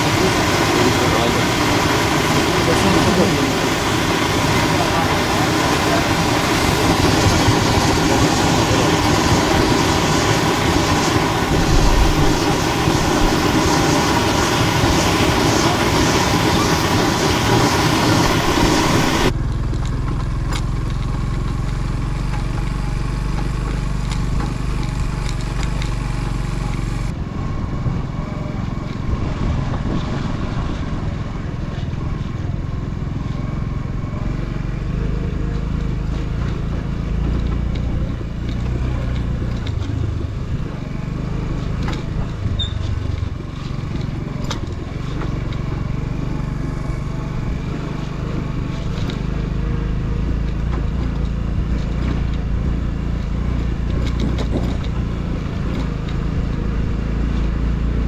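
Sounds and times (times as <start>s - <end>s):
loud rushing noise: 0.0s - 19.4s
motorcycle engine running: 0.0s - 58.0s.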